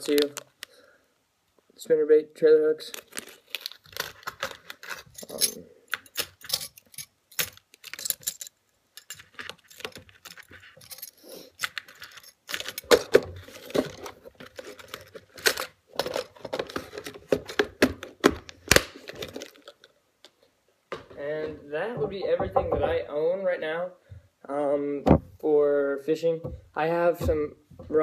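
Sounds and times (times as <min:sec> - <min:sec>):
small metal hooks rattling: 0:04.8 - 0:13.1.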